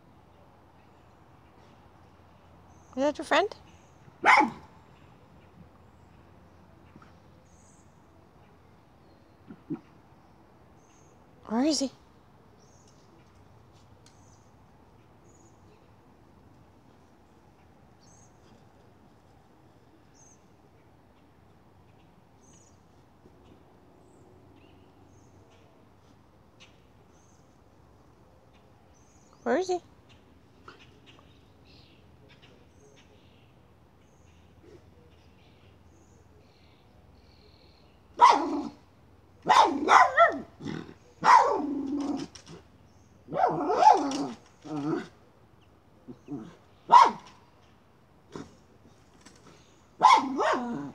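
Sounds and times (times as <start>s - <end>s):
dog barking and growling: 4.2s - 4.7s, 38.2s - 38.8s, 39.4s - 42.6s, 43.3s - 45.2s, 50.0s - 50.9s.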